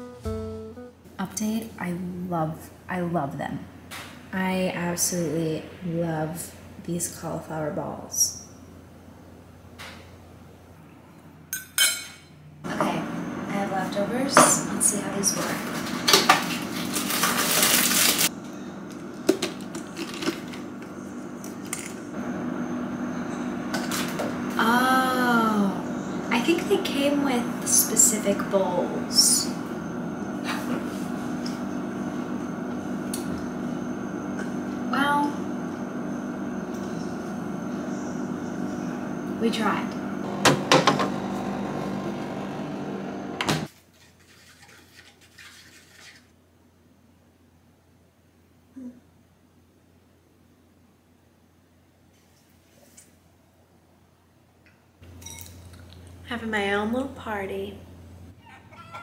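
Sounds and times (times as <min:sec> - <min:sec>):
electrical hum: 0:12.4 - 0:43.7, 0:55.0 - 0:59.0
spoon clinking in bowl: 0:55.2 - 0:55.7.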